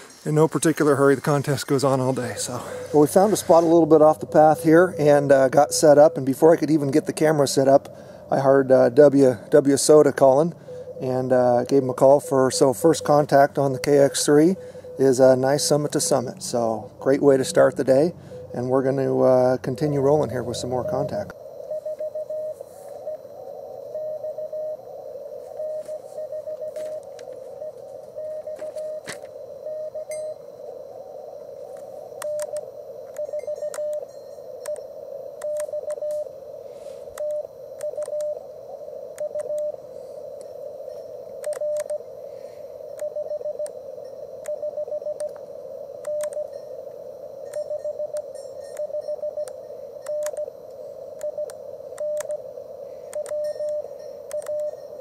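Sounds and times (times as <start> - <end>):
receiver hiss: 0.0 - 55.0
morse code tone: 0.3 - 55.0
faint clicks: 45.2 - 46.4, 47.5 - 52.4, 53.1 - 54.7.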